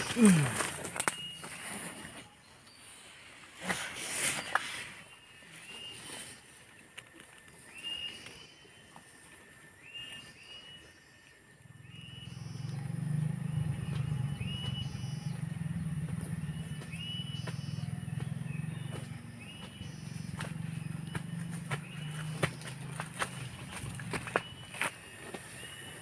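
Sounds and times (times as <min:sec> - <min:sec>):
cicadas shrilling: 0:00.0 - 0:02.2, 0:07.4 - 0:26.0
low steady drone: 0:11.6 - 0:26.0
footsteps through undergrowth: 0:13.8 - 0:25.9.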